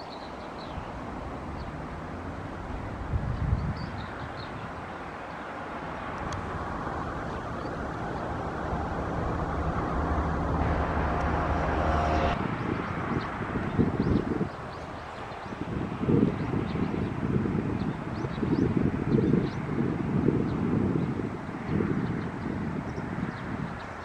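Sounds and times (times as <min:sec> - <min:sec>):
passing vehicle engine hum: 0:00.0 - 0:17.7
outdoor background noise: 0:00.0 - 0:24.0.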